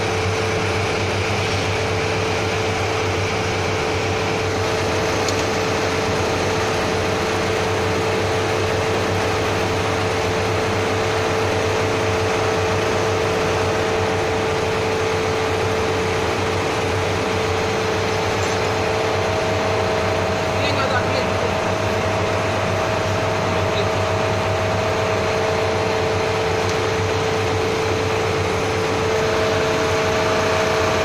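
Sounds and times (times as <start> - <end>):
machinery drone: 0.0 - 31.0
low hum: 11.8 - 31.0.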